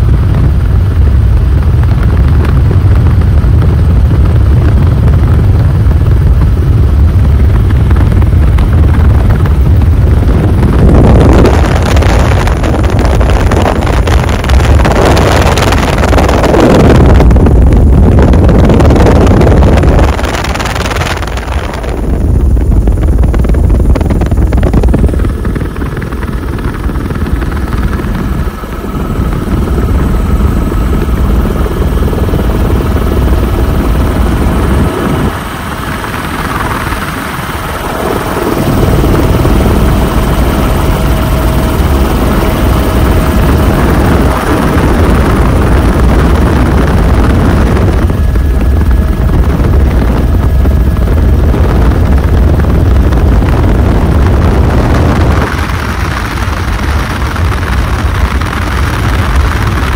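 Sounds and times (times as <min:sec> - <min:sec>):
helicopter rotor and engine rumble: 0:00.0 - 0:59.9
wind gusting over microphone: 0:00.0 - 0:59.9.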